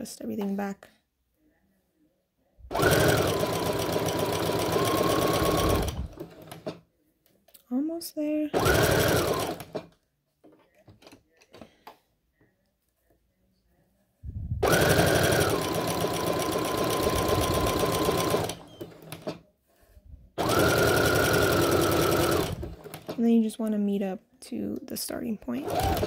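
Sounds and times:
sewing machine running: 2.7s - 6.8s, 8.6s - 9.9s, 14.6s - 19.4s, 20.4s - 23.2s, 25.6s - 26.0s.

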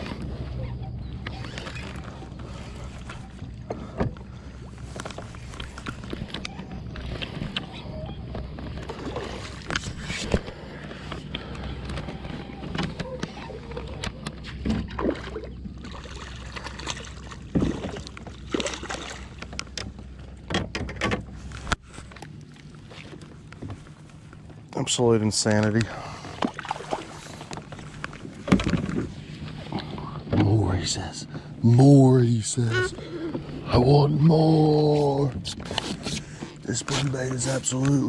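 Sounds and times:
gear clicking and knocking on kayak: 9.6s - 15.0s, 19.3s - 22.2s.

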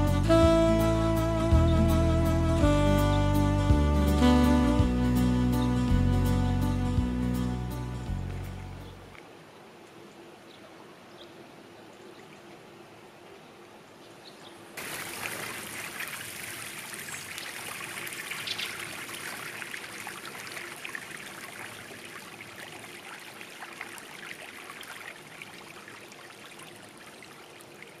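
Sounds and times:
fish splashing at water surface: 14.8s - 26.8s.

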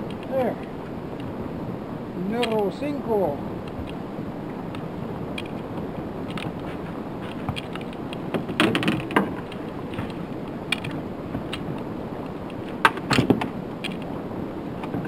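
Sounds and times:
wind and water hiss: 0.0s - 15.0s
clicks and knocks of gear handled: 6.2s - 11.8s, 12.5s - 14.1s.

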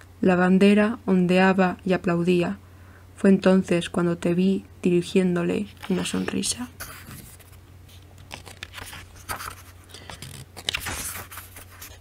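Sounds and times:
low electrical hum: 0.0s - 12.0s
paper rustling and crinkling: 5.7s - 12.0s.

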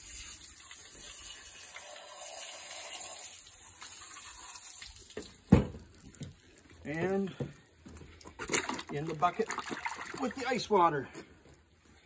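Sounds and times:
hose nozzle spraying water: 0.0s - 6.3s.

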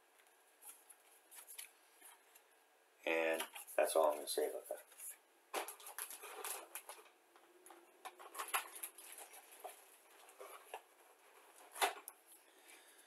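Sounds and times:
paper rustling and crackling: 0.6s - 2.4s, 3.3s - 7.2s, 8.0s - 12.1s.

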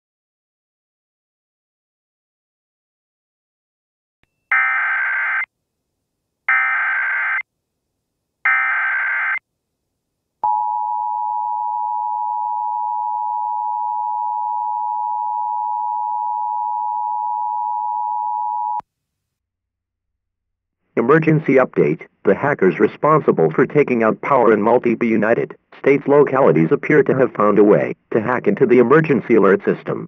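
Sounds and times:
steady dual tone alert: 4.5s - 5.5s, 6.5s - 7.4s, 8.5s - 9.4s
harsh digital data bursts: 8.5s - 9.4s.

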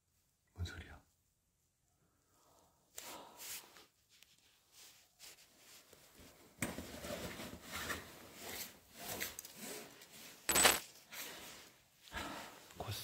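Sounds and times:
gear rustling and clattering: 9.0s - 11.0s.

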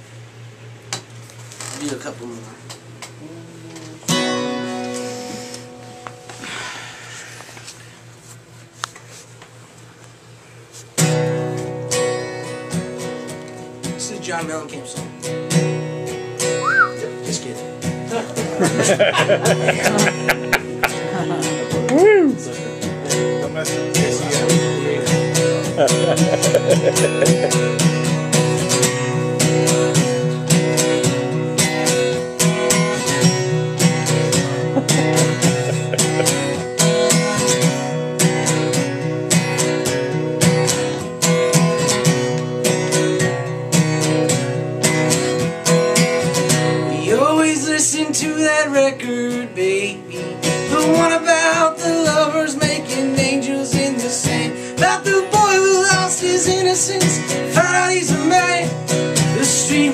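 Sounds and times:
acoustic guitar strumming: 3.8s - 8.0s, 10.9s - 59.9s
man singing: 46.9s - 59.9s.

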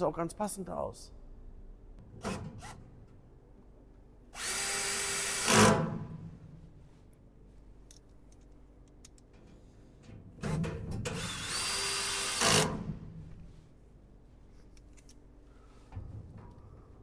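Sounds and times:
cordless drill driving screw: 4.4s - 5.8s, 11.2s - 12.8s.

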